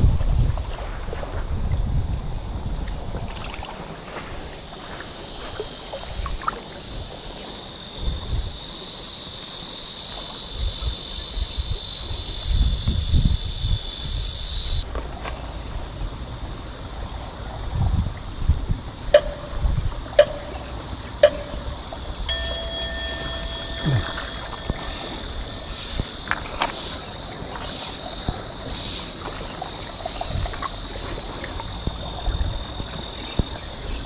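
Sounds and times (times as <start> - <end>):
wind gusting on microphone: 0.0 - 3.4
high insect chorus: 0.6 - 34.0.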